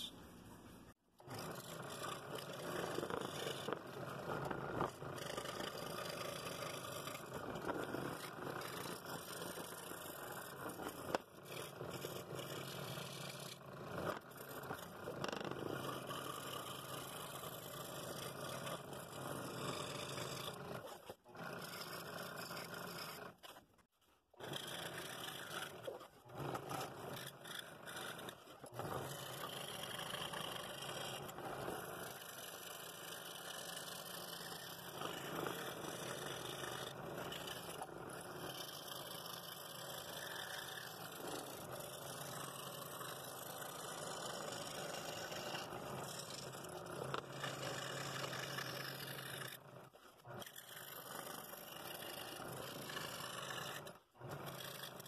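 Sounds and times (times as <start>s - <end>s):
scroll saw blade scraping: 19.8s - 23.6s, 24.5s - 49.6s.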